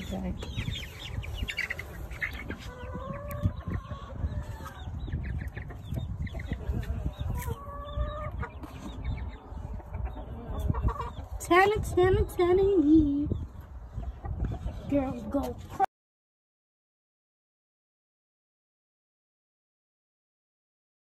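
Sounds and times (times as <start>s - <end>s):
chickens clucking: 0.0s - 15.9s.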